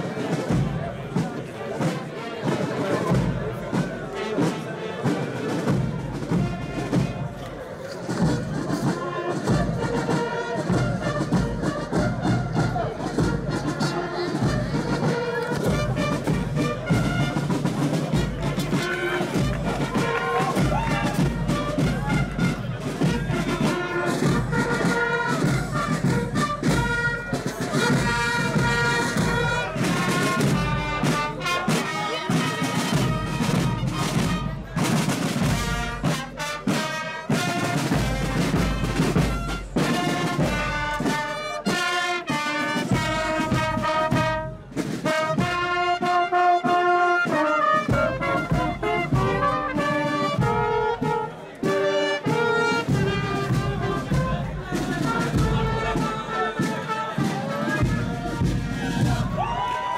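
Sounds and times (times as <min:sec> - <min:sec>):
brass playing march tune: 0:00.2 - 0:59.8
bass drums beating: 0:15.7 - 0:24.7, 0:57.8 - 0:59.7.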